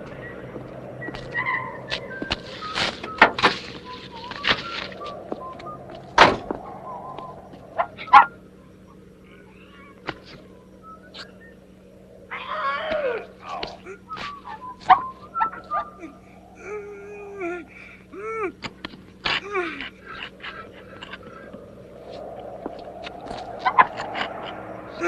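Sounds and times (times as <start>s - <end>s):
knocks against a car body: 6.2s - 6.7s
man grunting: 16.0s - 18.6s, 19.3s - 20.7s.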